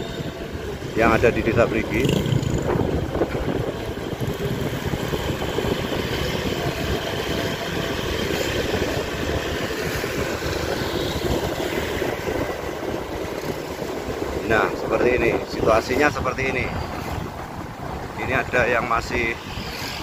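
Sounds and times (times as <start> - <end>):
road noise on wet street: 0.0 - 20.0
motorbike engine: 1.7 - 14.3.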